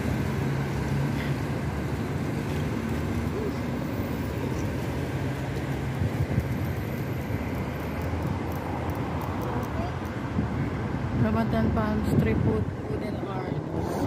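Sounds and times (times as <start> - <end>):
street traffic rumble: 0.0 - 14.0.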